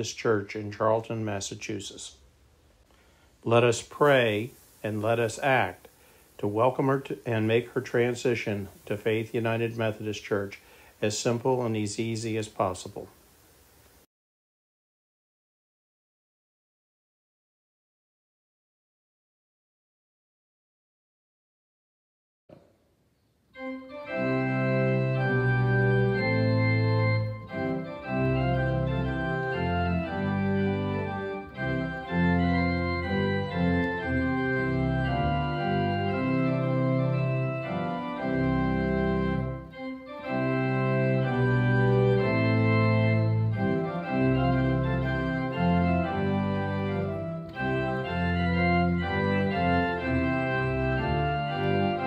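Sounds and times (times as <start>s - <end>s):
organ playing held chords: 3.5s - 5.8s, 6.4s - 13.0s, 23.5s - 52.0s.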